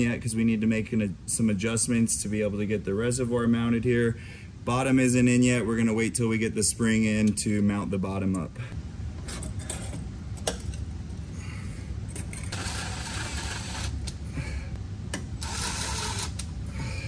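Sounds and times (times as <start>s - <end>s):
cordless power driver running: 12.5s - 14.2s, 15.2s - 16.5s.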